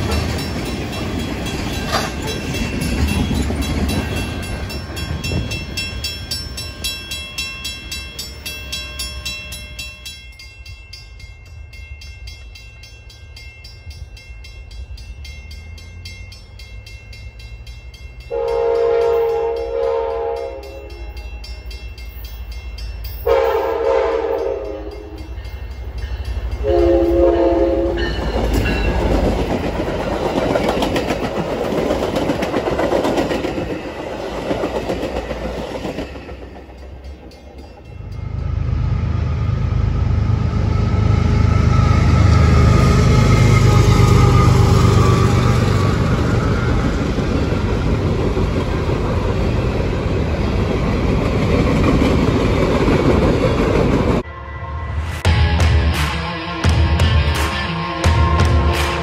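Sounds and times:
train wheels rumbling on rail: 0:00.0 - 0:59.0
locomotive horn blasts: 0:18.3 - 0:21.3, 0:23.3 - 0:25.3, 0:26.6 - 0:28.2.

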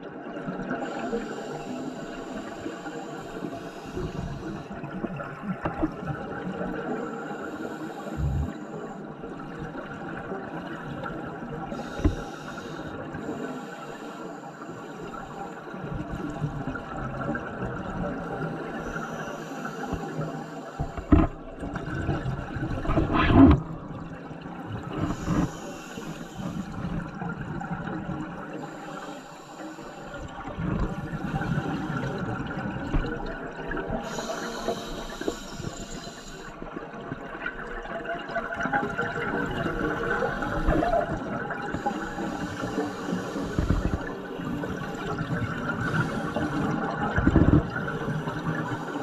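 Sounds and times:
regulator hiss on inhale: 0:00.8 - 0:04.8, 0:07.0 - 0:09.1, 0:11.7 - 0:15.8, 0:18.8 - 0:21.2, 0:25.0 - 0:27.0, 0:28.6 - 0:32.2, 0:34.0 - 0:36.6, 0:41.7 - 0:45.2, 0:45.8 - 0:46.9, 0:48.0 - 0:49.0
gurgling bubbles on exhale: 0:08.0 - 0:13.4, 0:15.8 - 0:28.7, 0:30.1 - 0:49.0.

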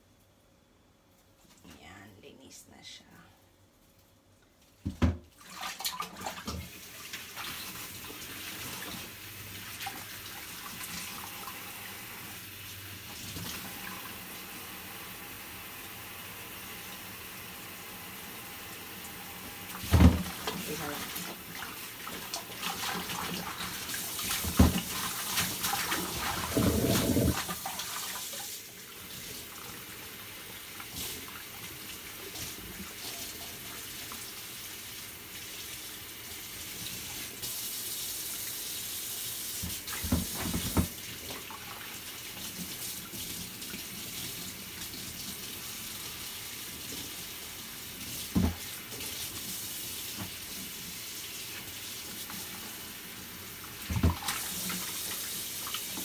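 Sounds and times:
hands swishing in water: 0:25.2 - 0:27.6.

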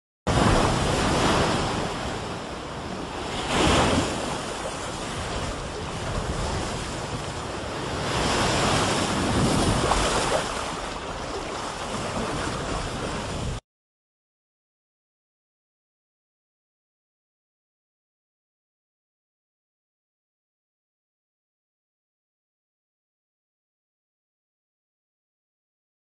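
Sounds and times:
waves breaking on beach: 0:00.3 - 0:13.6.

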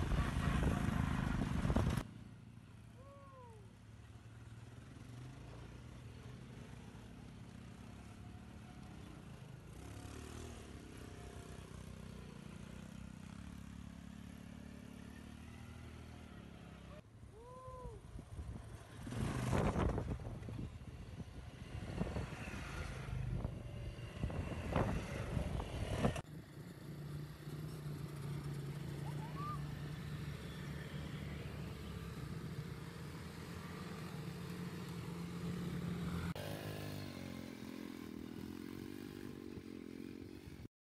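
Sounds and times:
off-road engines revving: 0:00.0 - 0:02.1, 0:04.3 - 0:17.0, 0:18.5 - 0:40.7.

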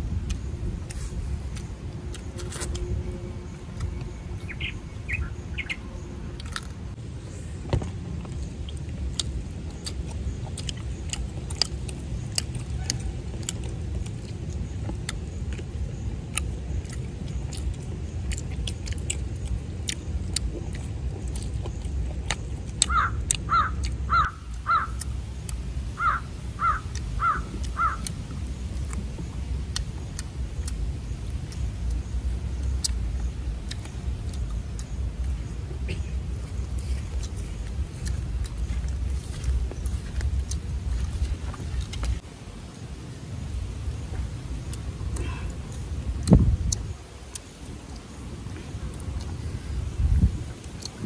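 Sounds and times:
steady low rumble: 0:00.0 - 0:51.0
people eating with hands: 0:00.1 - 0:51.0
crow cawing: 0:22.9 - 0:25.0, 0:26.0 - 0:28.1.

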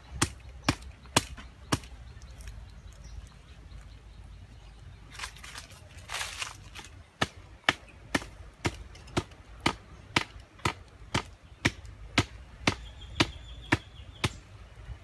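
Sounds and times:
blade chopping wooden stick: 0:07.2 - 0:14.4.

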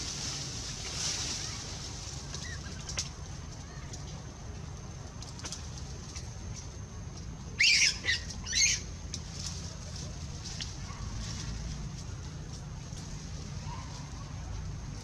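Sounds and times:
low background rumble: 0:00.0 - 0:15.0
high-pitched animal squeaks: 0:07.6 - 0:08.8.

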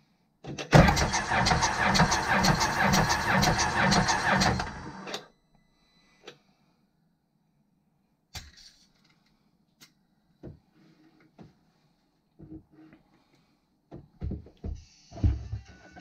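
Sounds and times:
engine starter cranking: 0:00.7 - 0:05.2.

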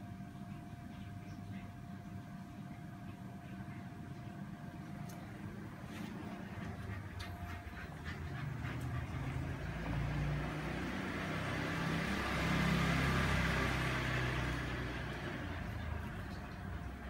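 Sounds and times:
vehicle passing by: 0:05.7 - 0:17.0.

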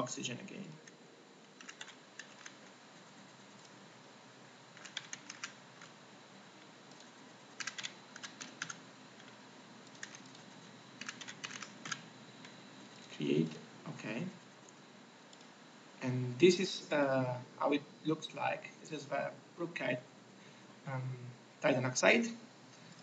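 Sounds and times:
faint steady hiss: 0:00.0 - 0:23.0
computer keyboard typing: 0:00.8 - 0:03.8, 0:04.8 - 0:06.0, 0:06.9 - 0:12.6.

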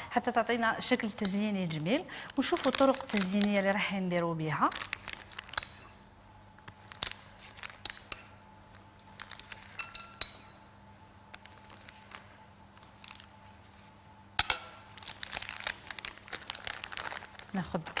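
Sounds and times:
utensils clinking against dishes: 0:09.7 - 0:10.6, 0:14.4 - 0:14.8
small rustles and clicks: 0:11.3 - 0:13.9.

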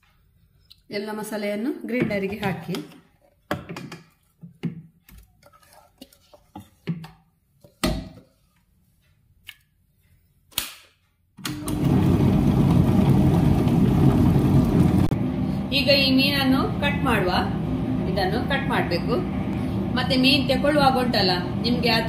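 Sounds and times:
wet grinder running: 0:11.5 - 0:22.0.

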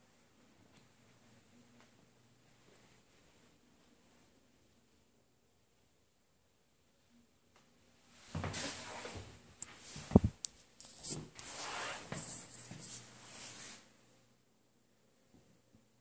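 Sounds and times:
rustling and scraping: 0:08.3 - 0:13.9.

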